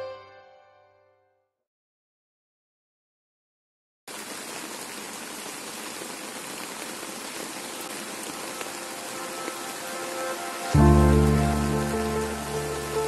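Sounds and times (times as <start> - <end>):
steady rain falling: 4.1 - 13.0.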